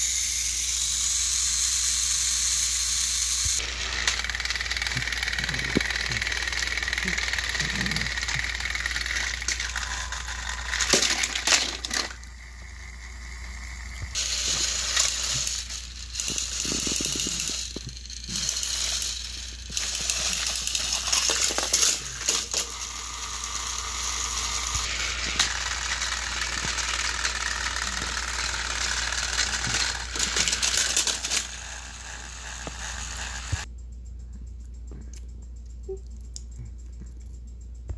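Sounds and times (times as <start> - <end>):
plastic toy trains clattering: 3.6 - 12.3, 14.1 - 33.7.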